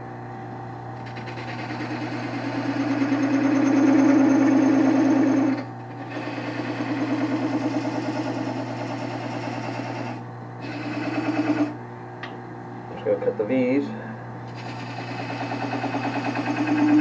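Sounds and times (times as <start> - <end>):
lathe motor hum: 1.0 - 11.8, 14.5 - 17.0
lathe tool rattling cut: 1.0 - 11.8.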